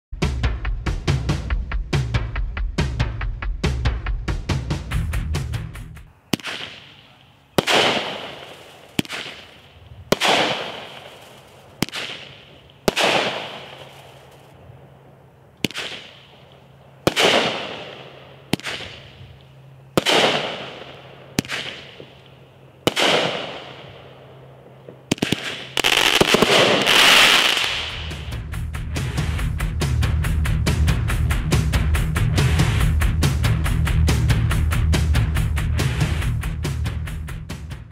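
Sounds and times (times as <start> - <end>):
firework launch pops: 6.3 - 9.6, 10.2 - 14.4, 15.6 - 16.4, 20.0 - 22.2
firework crackling: 6.3 - 14.6, 15.6 - 19.2, 20.0 - 22.3, 24.9 - 28.4
firework breaks: 25.1 - 28.3.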